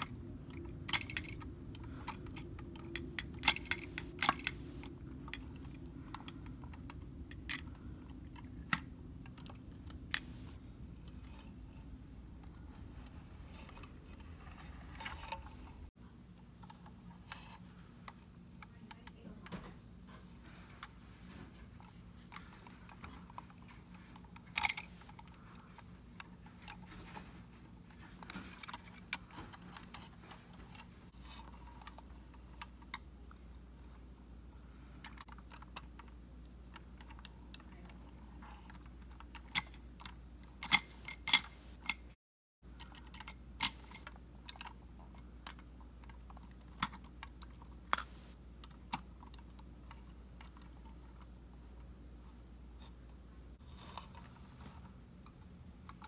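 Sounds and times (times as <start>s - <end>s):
toy truck parts clicking: 0.0s - 11.7s.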